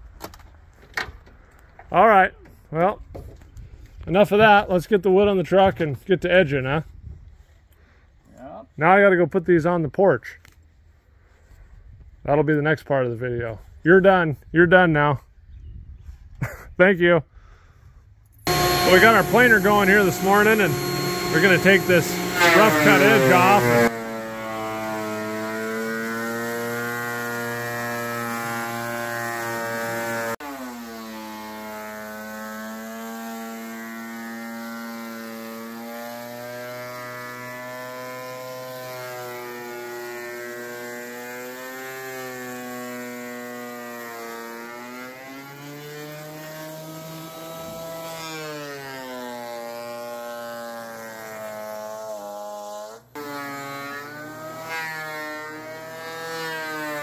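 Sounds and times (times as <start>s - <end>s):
thickness planer motor whine: 18.5s - 57.0s.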